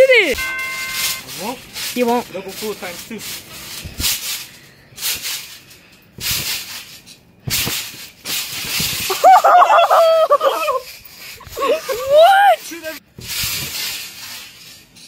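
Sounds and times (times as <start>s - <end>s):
trampoline bouncing: 0.1s - 15.0s
people yelling and cheering: 9.1s - 10.8s, 11.4s - 13.0s.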